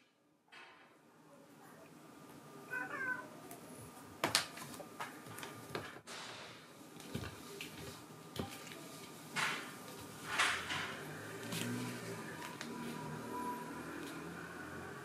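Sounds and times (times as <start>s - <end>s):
cat meowing: 2.7s - 3.4s.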